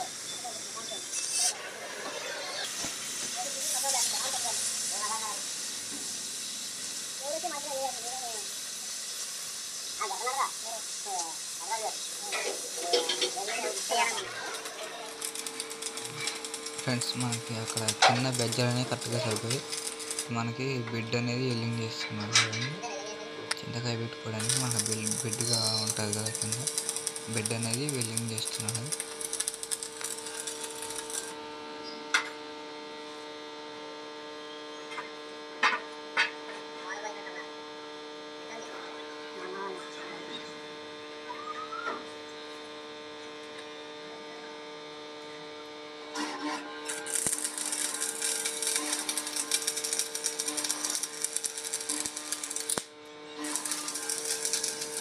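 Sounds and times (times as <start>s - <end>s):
welding arc crackling: 0.0s - 32.4s, 46.1s - 55.0s
welder transformer humming: 0.0s - 55.0s.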